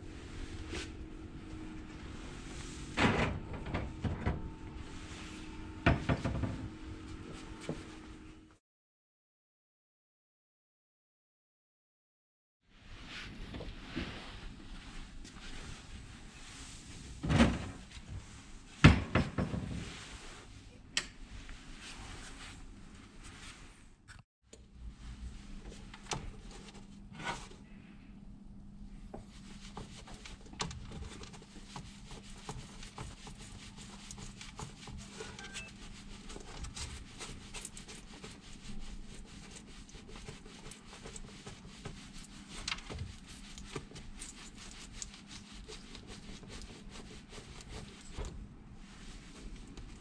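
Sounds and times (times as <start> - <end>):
steady low hum: 0.0 - 8.5, 24.6 - 50.0.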